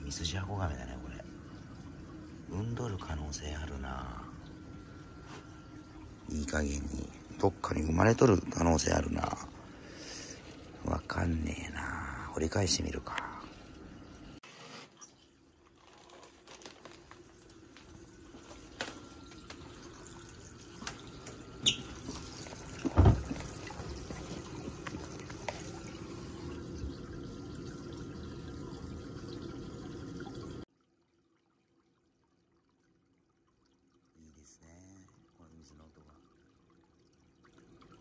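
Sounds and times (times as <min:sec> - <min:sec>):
water pouring from pipe: 0:00.0 - 0:38.0.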